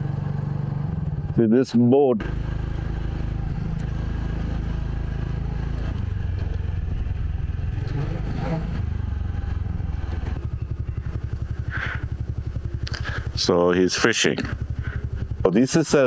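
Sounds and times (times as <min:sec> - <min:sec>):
motorcycle engine: 0:00.0 - 0:16.0.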